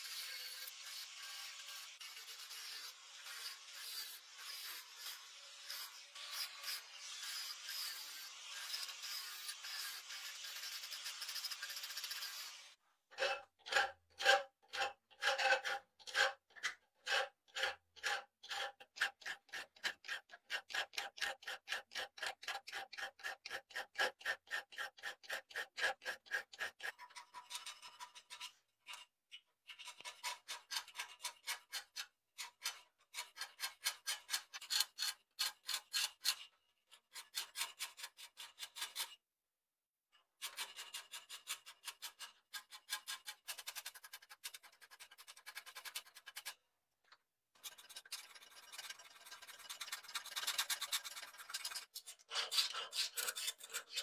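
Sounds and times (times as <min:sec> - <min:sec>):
hand file rasping on steel blade: 0:00.0 - 0:12.6, 0:13.2 - 0:16.4, 0:17.0 - 0:28.4, 0:29.8 - 0:39.1, 0:47.6 - 0:54.0.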